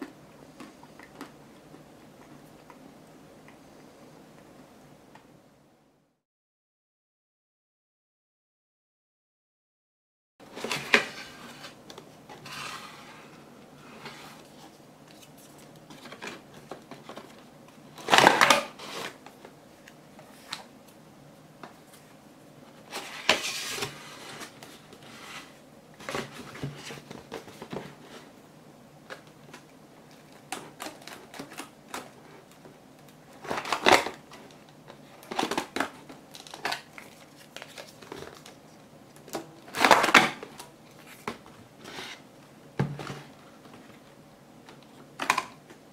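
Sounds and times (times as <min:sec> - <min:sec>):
cardboard rustling and scraping: 0:10.5 - 0:17.4, 0:22.8 - 0:28.4.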